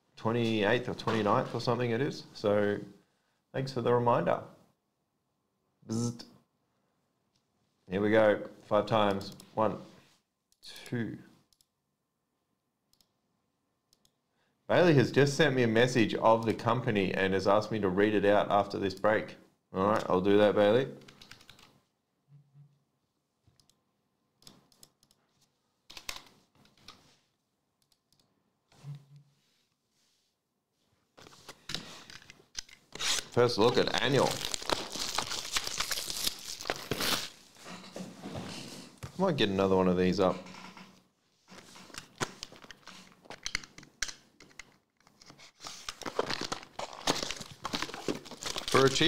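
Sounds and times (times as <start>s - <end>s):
foil packs crinkling: 33.1s - 37.4s, 45.7s - 49.0s.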